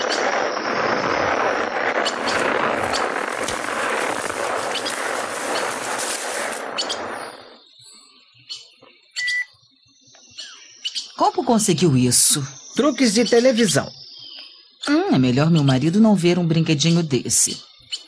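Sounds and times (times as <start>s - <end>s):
rushing hiss with crackles: 0.0s - 8.2s
short bird chirps: 6.7s - 11.2s.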